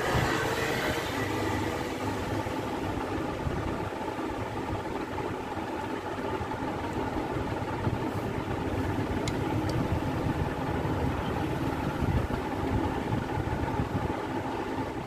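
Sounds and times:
idling motor hum: 0.0 - 15.0.

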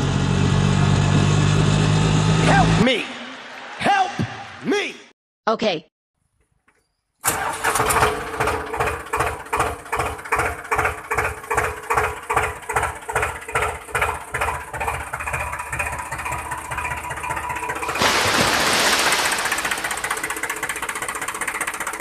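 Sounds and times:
tractor diesel engine chugging: 7.2 - 22.0.

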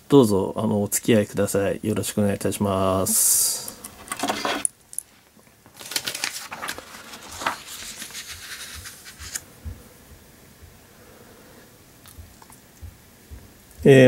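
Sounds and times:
paper rustling and sliding: 4.0 - 4.7, 5.7 - 9.4.

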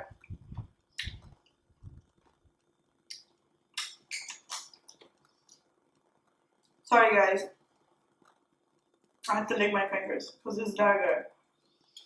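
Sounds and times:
soft chewing: 0.1 - 6.9
fingers being licked: 0.2 - 1.6, 3.1 - 5.6.

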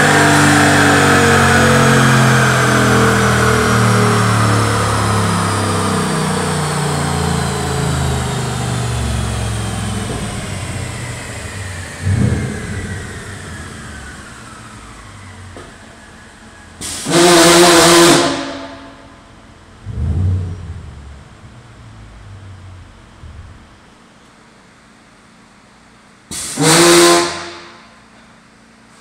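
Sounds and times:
engine blips: 0.0 - 24.0
whine falling in pitch: 19.8 - 23.8
loud rushing noise: 19.8 - 23.9.

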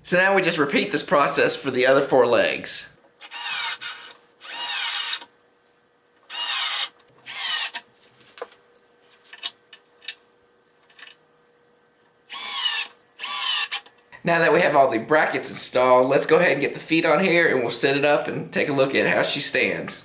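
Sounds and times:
cordless drill driving screws: 3.2 - 5.3, 6.3 - 7.8, 12.3 - 13.9.

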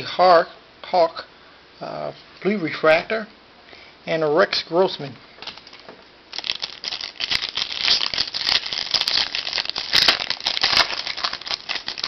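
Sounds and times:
foil wrapper crinkling and tearing: 5.4 - 12.0.

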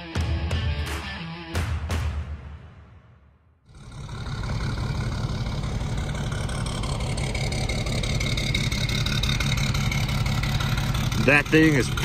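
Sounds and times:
diesel truck engine idling: 3.7 - 12.0.

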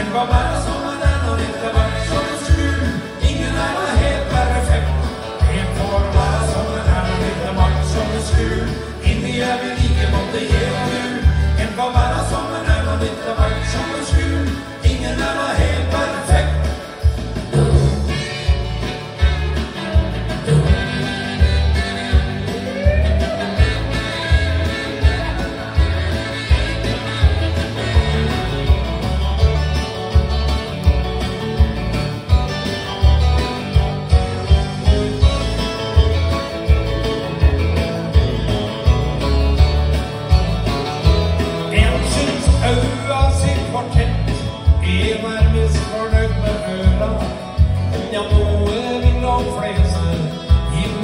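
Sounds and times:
man singing into microphone: 0.0 - 18.5, 41.6 - 51.0
country music with beat and bass: 0.0 - 51.0
guitar: 0.0 - 51.0.

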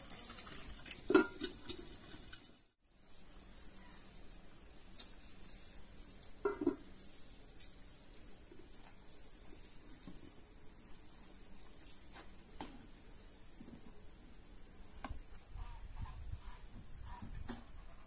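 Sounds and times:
eggs frying in a pan: 0.0 - 3.3.

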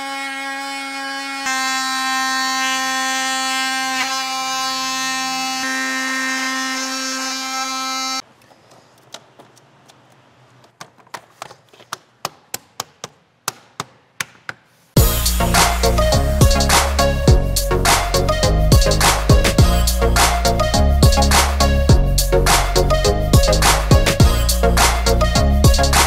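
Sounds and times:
oscillating multi-tool buzzing: 0.0 - 8.2.

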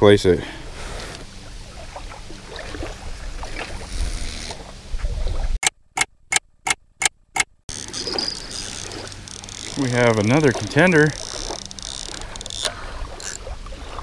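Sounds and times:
small waves lapping: 0.6 - 5.6, 7.7 - 14.0
wind on microphone: 0.8 - 5.6, 7.7 - 14.0.

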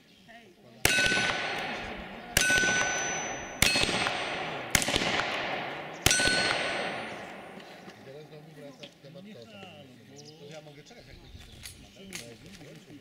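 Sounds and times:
steel plate target ringing: 0.9 - 7.6
revolver shots: 0.9 - 8.1.

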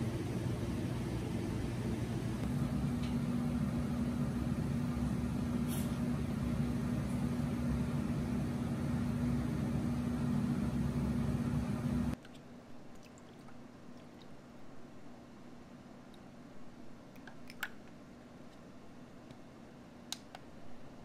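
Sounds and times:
machine hum: 0.0 - 12.2
water trickling from jug: 12.3 - 14.4.

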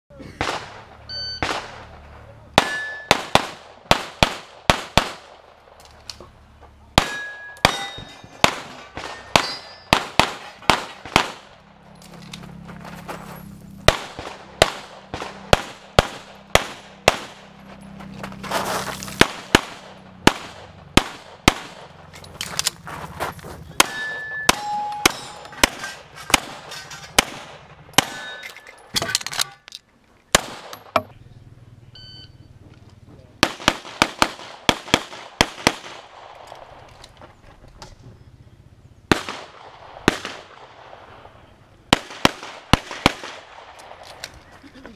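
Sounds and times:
pistol shots: 0.4 - 5.6, 7.0 - 11.7, 13.8 - 17.6, 19.1 - 22.1, 23.8 - 29.5, 30.3 - 31.1, 33.4 - 36.9, 39.1 - 44.3
steel targets ringing: 2.6 - 3.3, 7.0 - 11.0, 23.8 - 27.2, 27.9 - 29.7.

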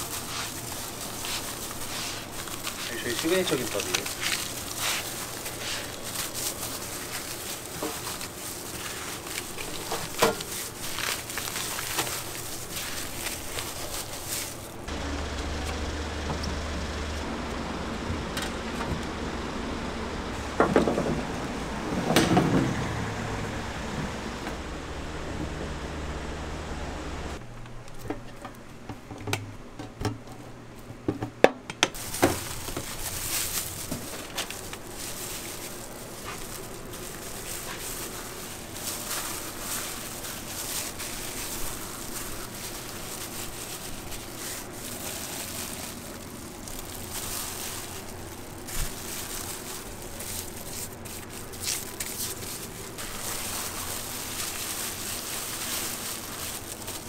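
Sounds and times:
gloved hands patting and rustling: 0.0 - 15.0, 31.9 - 57.0.

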